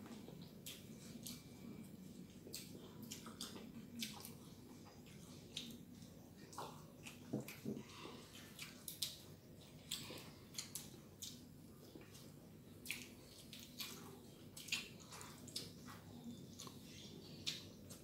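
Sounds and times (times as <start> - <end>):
children chewing and lip smacking: 0.0 - 18.0.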